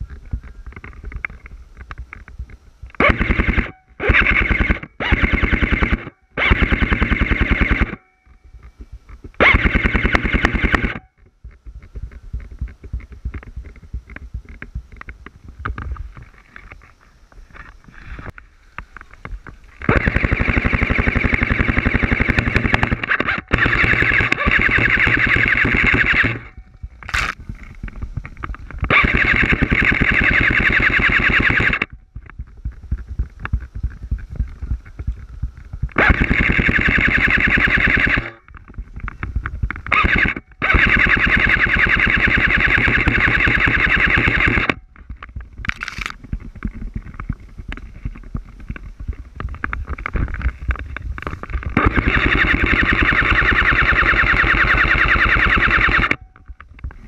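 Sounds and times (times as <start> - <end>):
airsoft rifle firing full auto: 3.0 - 8.0, 9.4 - 11.0, 19.9 - 26.5, 28.9 - 31.9, 36.0 - 38.3, 40.0 - 44.7, 51.8 - 56.1.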